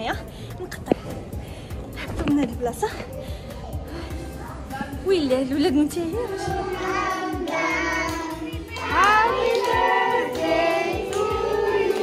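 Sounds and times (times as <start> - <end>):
child singing over a beat: 6.2 - 12.0.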